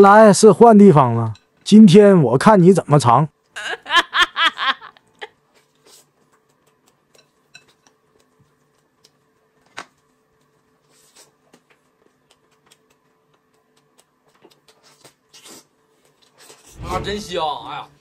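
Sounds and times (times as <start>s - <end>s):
chopsticks clicking against bowl: 6.5s - 8.3s.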